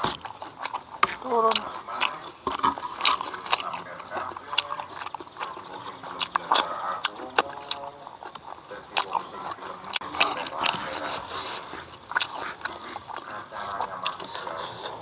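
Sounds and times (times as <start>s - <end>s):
person chewing: 0.0s - 15.0s.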